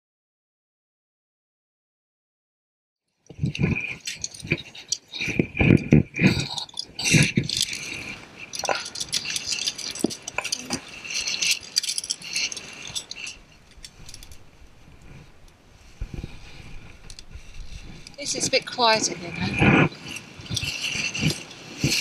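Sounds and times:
carabiners clinking on steel cable: 3.2 - 22.0.

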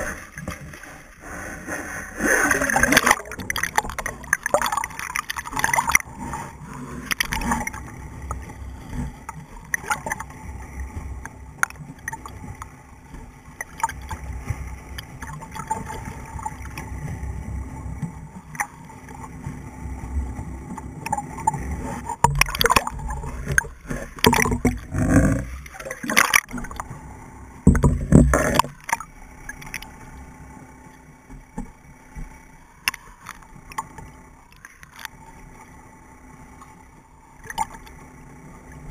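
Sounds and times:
muffled underwater water rushing: 0.0 - 38.9
gurgling bubbles: 2.1 - 12.8, 13.5 - 30.0.

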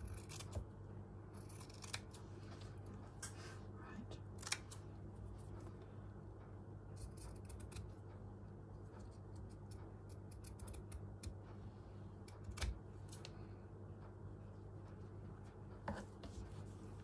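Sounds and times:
scissors snipping fabric: 0.0 - 0.7, 1.4 - 2.2, 6.9 - 8.0, 9.0 - 11.4, 12.2 - 12.8.

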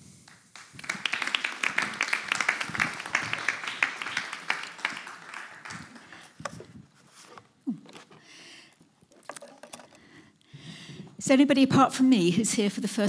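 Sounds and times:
congregation applauding: 0.3 - 6.7.

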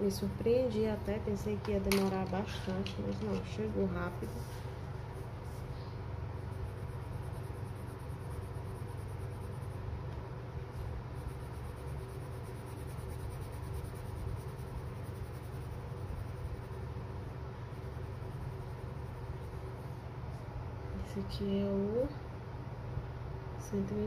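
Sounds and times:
steady low hum: 0.0 - 24.0
pencil scratching on paper: 6.4 - 9.9, 11.1 - 17.1, 17.7 - 19.8.

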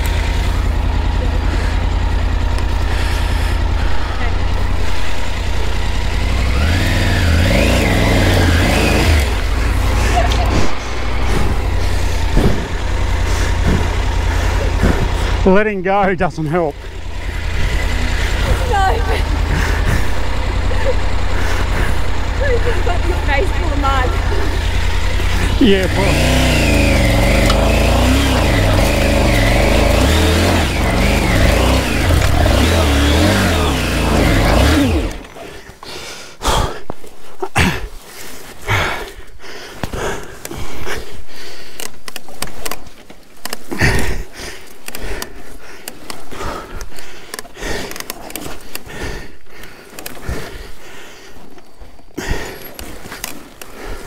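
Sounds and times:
motorcycle engine revving: 0.0 - 35.8.

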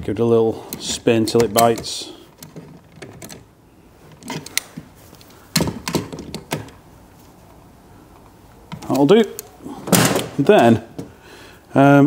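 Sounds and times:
lock nut clicking and knocking: 0.7 - 3.5, 5.5 - 6.8.

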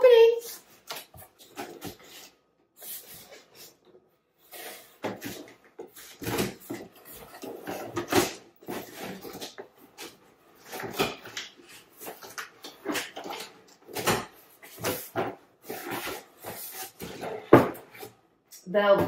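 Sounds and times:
cardboard flaps scraping: 4.4 - 18.2.

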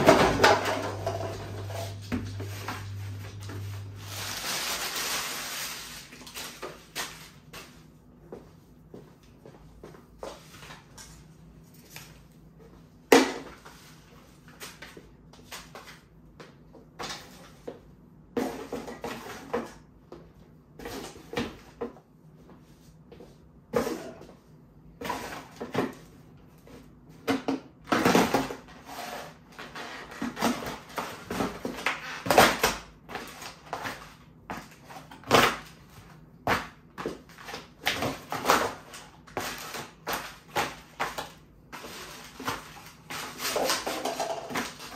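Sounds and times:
cardboard and paper crunching underfoot: 2.3 - 7.4.

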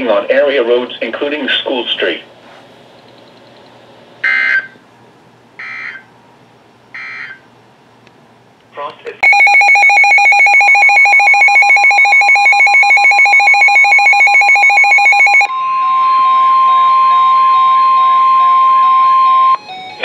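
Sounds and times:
pulsing two-pitch electronic beep: 9.2 - 15.5
steady warning tone: 9.2 - 15.5.

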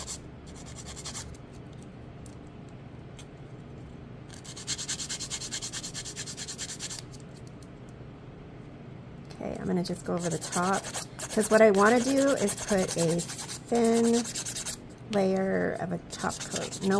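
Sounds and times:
nail file rasping: 0.0 - 1.4, 4.3 - 7.1, 10.2 - 14.8, 16.2 - 16.9.

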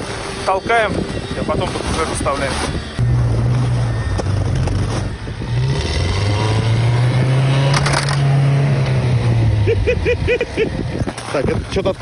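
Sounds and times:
scraping noise: 1.4 - 6.2
car engine revving hard: 2.4 - 10.8.

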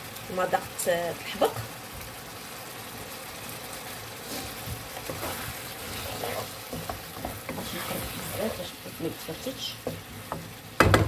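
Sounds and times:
fish sizzling in a frying pan: 0.0 - 11.0
wooden spoon scraping a pan: 3.9 - 10.7.

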